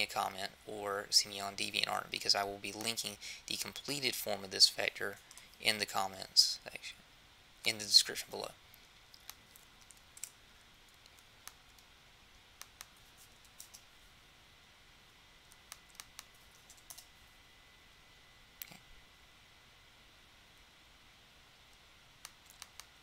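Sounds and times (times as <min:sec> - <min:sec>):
computer mouse and keyboard clicks: 0:15.5 - 0:17.1, 0:22.2 - 0:23.0.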